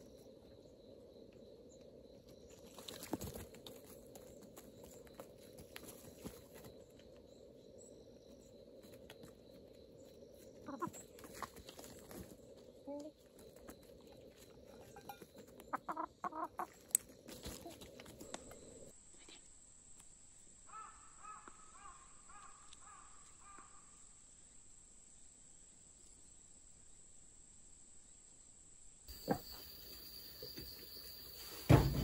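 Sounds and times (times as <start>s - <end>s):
chickens scratching and pecking: 2.5s - 6.8s, 8.7s - 18.6s
chickens clucking: 10.7s - 11.9s, 14.3s - 17.8s.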